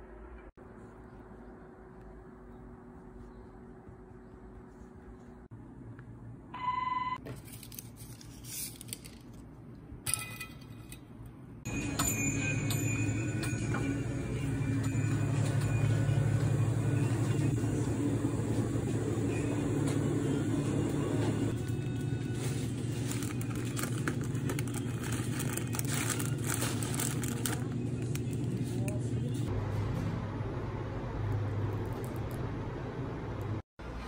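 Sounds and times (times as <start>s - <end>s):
refrigerated coolers humming: 11.7s - 34.0s.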